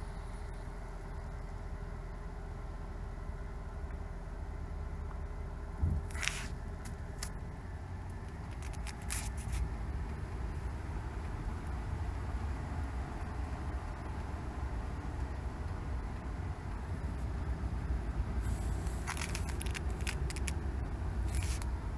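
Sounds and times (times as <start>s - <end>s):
short crackles: 6.0s - 7.4s, 8.2s - 9.7s, 18.5s - 20.6s, 21.2s - 21.7s.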